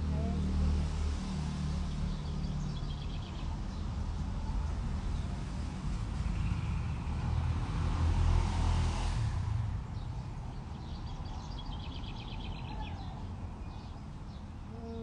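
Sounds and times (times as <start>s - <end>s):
vehicle passing rumble: 0.0s - 15.0s
bird chirping: 10.0s - 15.0s.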